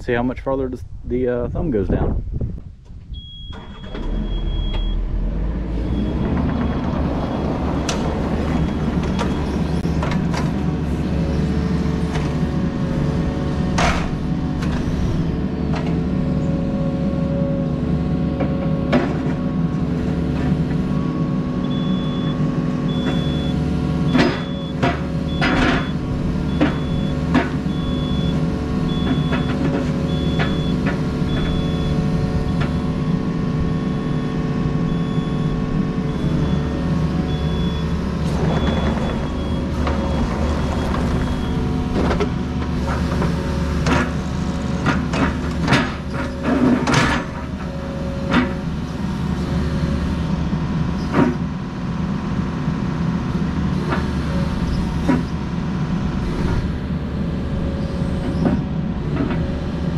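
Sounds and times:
diesel engine running: 0.0s - 59.9s
faint high beep: 3.1s - 5.0s.

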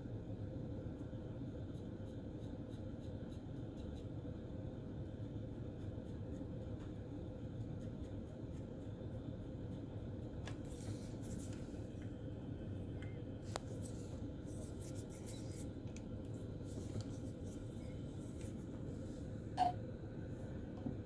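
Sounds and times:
steady low hum: 0.0s - 21.0s
paintbrush scratching on plastic: 10.6s - 11.8s, 13.6s - 15.8s, 16.6s - 18.7s.

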